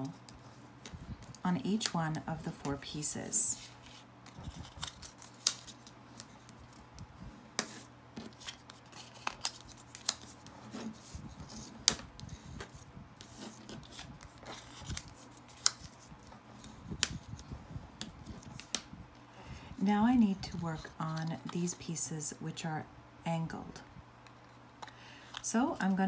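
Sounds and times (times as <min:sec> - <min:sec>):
paper rustling and rubbing: 0:03.5 - 0:17.6.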